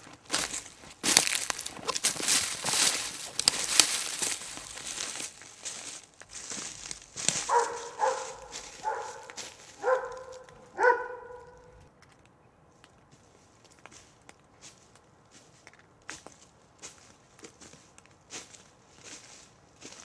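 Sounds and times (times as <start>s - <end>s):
footsteps crunching on trail: 0.0s - 11.9s, 13.1s - 20.0s
dog barking: 7.4s - 11.8s.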